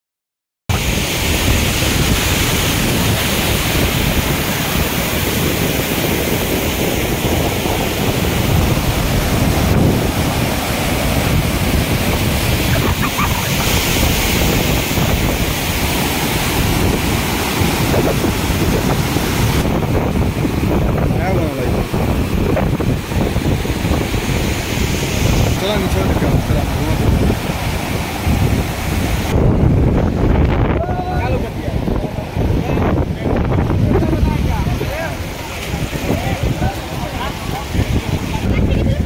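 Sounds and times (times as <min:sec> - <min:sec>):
waterfall rushing over rocks: 0:00.7 - 0:39.0
wind buffeting microphone: 0:00.7 - 0:39.0.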